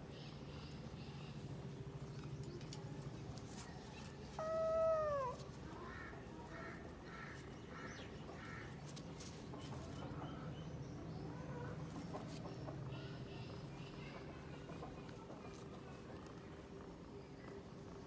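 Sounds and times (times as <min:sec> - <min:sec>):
faint short kitten calls: 0:04.4 - 0:05.4
kitten meowing: 0:04.4 - 0:05.4.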